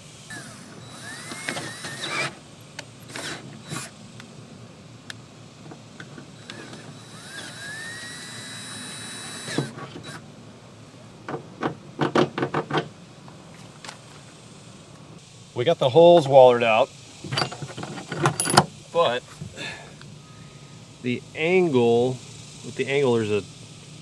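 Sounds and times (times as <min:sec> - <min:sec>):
cordless drill whirring: 0:00.3 - 0:02.4, 0:03.0 - 0:04.0, 0:06.4 - 0:10.2.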